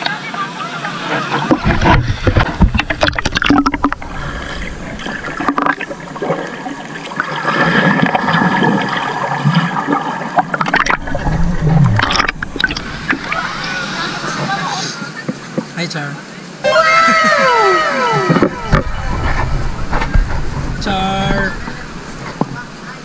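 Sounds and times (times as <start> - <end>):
underwater gurgling and sloshing: 0.8 - 15.7, 16.6 - 23.0
clicking bubbles: 1.5 - 7.3, 10.4 - 13.4.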